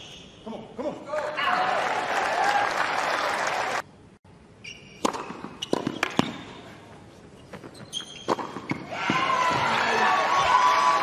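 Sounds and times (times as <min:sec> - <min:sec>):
crowd applause: 0:01.5 - 0:03.8
tennis ball bouncing on hard court: 0:05.0 - 0:06.6, 0:07.5 - 0:09.7.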